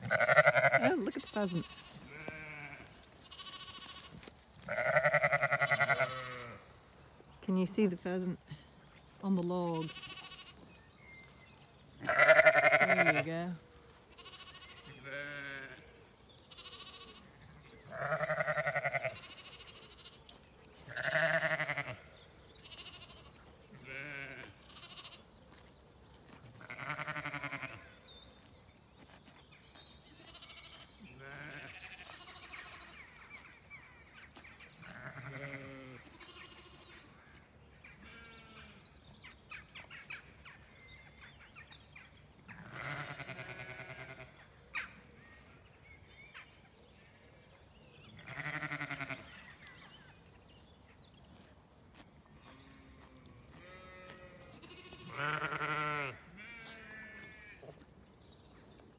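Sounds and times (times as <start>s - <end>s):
sheep bleating: 0.0s - 6.7s, 9.8s - 10.6s, 12.0s - 25.3s, 26.6s - 28.0s, 30.2s - 33.0s, 34.9s - 37.0s, 38.0s - 38.8s, 42.5s - 44.4s, 48.2s - 49.4s, 52.5s - 57.8s.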